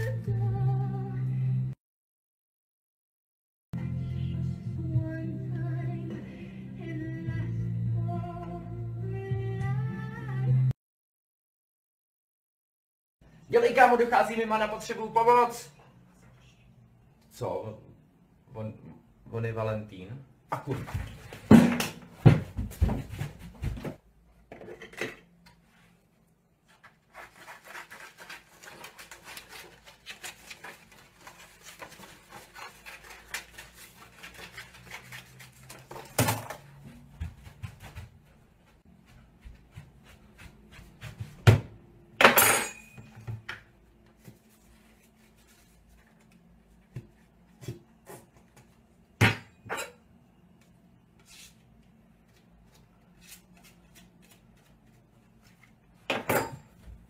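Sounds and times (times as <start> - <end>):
paper rustling and crinkling: 26.6 - 36.7.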